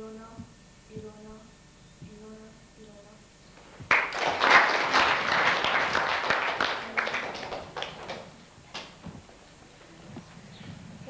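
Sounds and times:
audience applauding: 3.9s - 9.0s.

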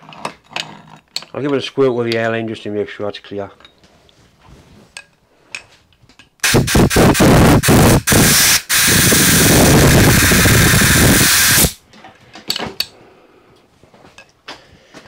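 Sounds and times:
compressed air blasts: 6.4s - 11.8s.

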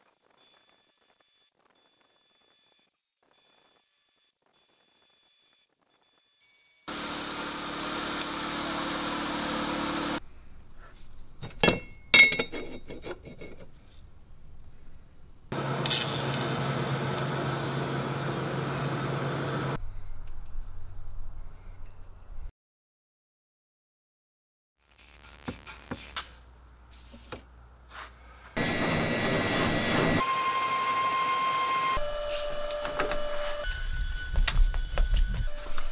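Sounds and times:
workshop machine running: 6.9s - 10.2s, 15.5s - 19.8s, 28.6s - 35.9s.

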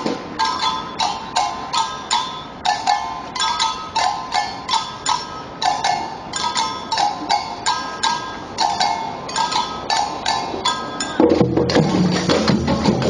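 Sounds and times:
samba percussion band playing: 5.8s - 13.0s.

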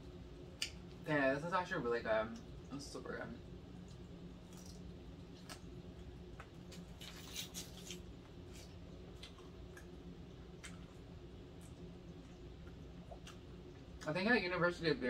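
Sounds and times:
wet chewing and mouth clicks: 3.8s - 14.1s.

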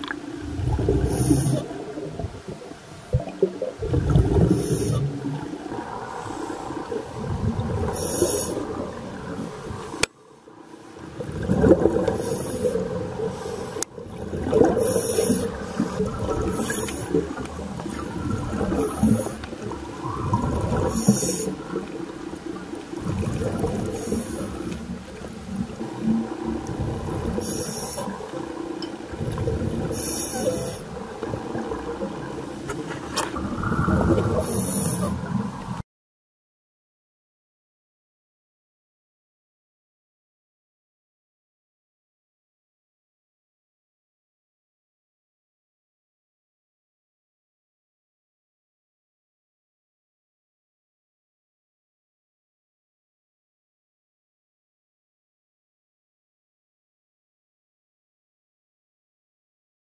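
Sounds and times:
exhaled bubbles gurgling underwater: 0.0s - 35.8s
low water rumble: 0.0s - 35.8s.

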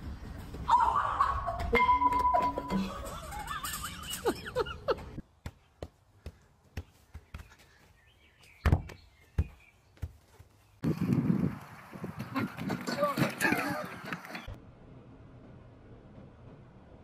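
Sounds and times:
football kicked dull thuds: 8.6s - 10.5s.

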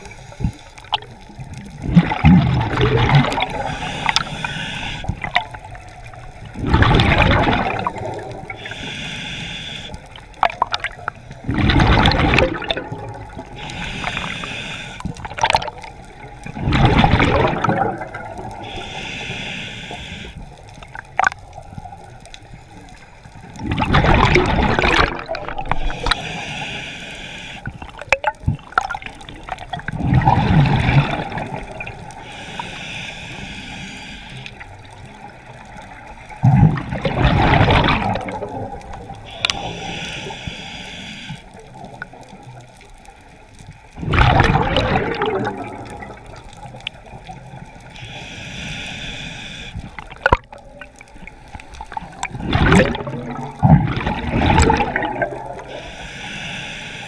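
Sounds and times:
regulator inhale hiss: 0.0s - 0.9s, 3.5s - 5.3s, 8.4s - 10.3s, 13.4s - 15.2s, 18.5s - 20.8s, 25.7s - 27.8s, 32.0s - 34.7s, 39.1s - 42.3s, 47.6s - 50.0s, 55.6s - 57.0s
exhaled bubbles bursting: 0.8s - 4.2s, 6.4s - 8.6s, 10.4s - 13.6s, 15.0s - 18.6s, 23.6s - 26.2s, 27.6s - 32.1s, 36.4s - 39.7s, 44.0s - 47.4s, 49.9s - 51.0s, 51.8s - 55.7s.

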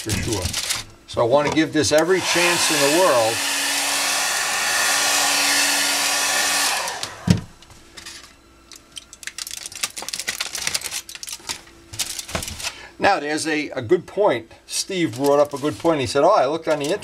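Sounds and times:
tape crackling as peeled off: 0.0s - 0.9s, 8.0s - 12.7s, 15.0s - 16.0s
hair dryer blowing: 1.9s - 7.5s
thump: 7.2s - 7.5s.

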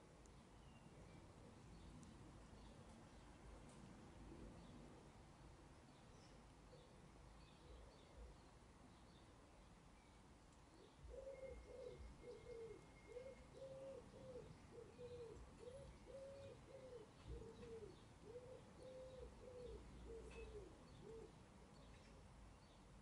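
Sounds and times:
small birds chirping: 0.1s - 3.5s, 5.8s - 23.0s
dove cooing: 11.0s - 21.4s.

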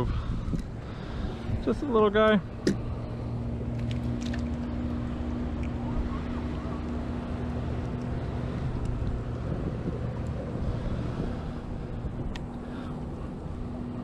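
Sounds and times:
boat engine humming: 0.0s - 14.0s
wind buffeting microphone: 0.0s - 14.0s.

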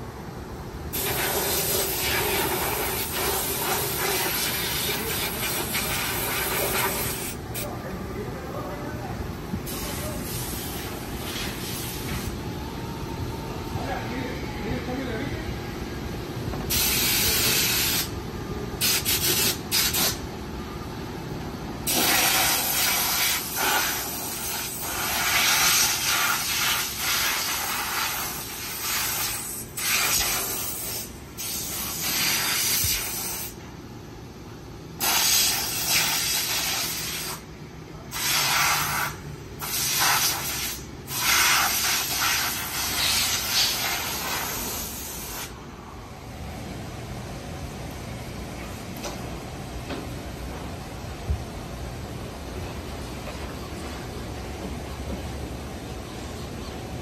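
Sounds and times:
compressed air blow gun hissing: 0.9s - 7.4s, 9.6s - 12.4s, 16.7s - 18.1s, 18.8s - 20.2s, 21.9s - 33.6s, 35.0s - 37.4s, 38.1s - 45.6s.

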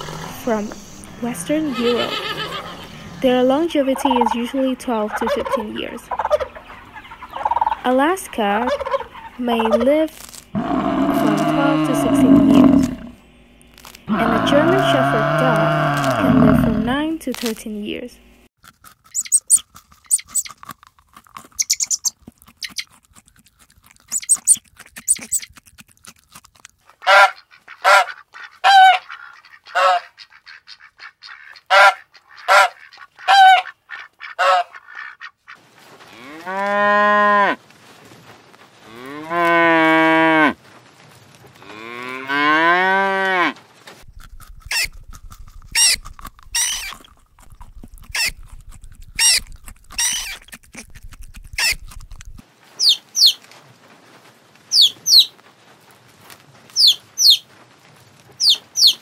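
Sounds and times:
rabbit crunching lettuce: 0.0s - 34.6s, 43.5s - 59.0s
chicks cheeping: 3.9s - 9.8s, 52.8s - 53.4s, 54.7s - 55.3s, 56.8s - 57.4s, 58.4s - 59.0s
cow mooing: 10.5s - 13.2s, 14.1s - 17.0s, 38.9s - 40.6s, 41.6s - 43.6s.

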